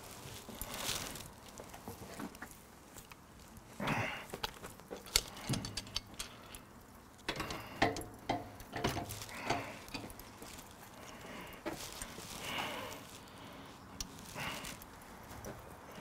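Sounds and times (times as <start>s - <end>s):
metal spit rod clinking and scraping: 5.0s - 6.7s.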